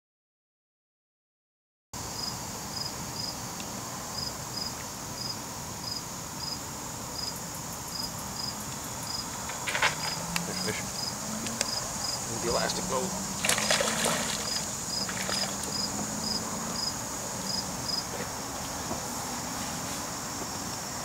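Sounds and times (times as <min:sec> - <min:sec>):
insect drone: 0:02.0 - 0:21.0
short paired insect chirps: 0:07.2 - 0:18.0
small splash on water: 0:13.4 - 0:15.9.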